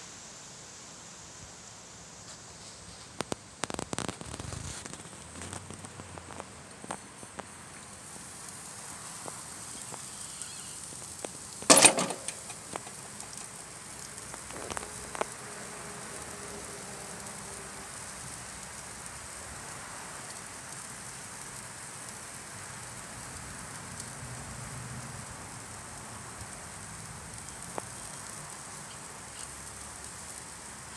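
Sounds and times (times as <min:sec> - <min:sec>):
steak sizzling over charcoal: 0:00.0 - 0:30.9
grill lid metal clatter: 0:11.6 - 0:13.6.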